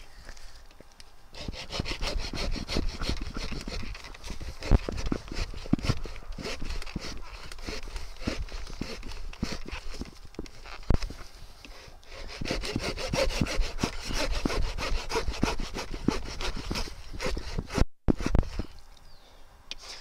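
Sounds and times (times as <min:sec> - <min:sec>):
saw cutting through log: 0:01.3 - 0:10.1, 0:12.1 - 0:18.7.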